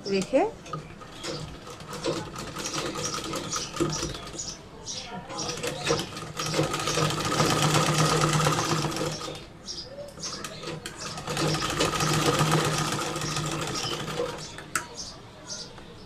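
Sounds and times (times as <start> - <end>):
sewing machine stitching: 1.0 - 4.4, 5.4 - 9.4, 10.3 - 14.6.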